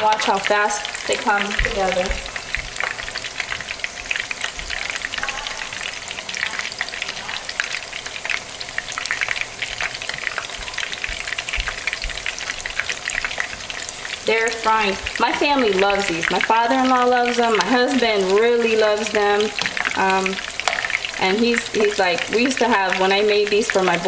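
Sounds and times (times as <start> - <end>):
food frying in oil with pops: 0.0 - 24.0.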